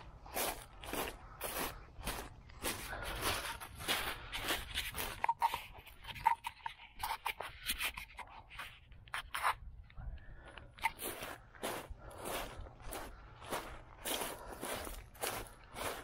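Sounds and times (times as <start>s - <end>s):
uneven footsteps with scraping: 0.0s - 16.0s.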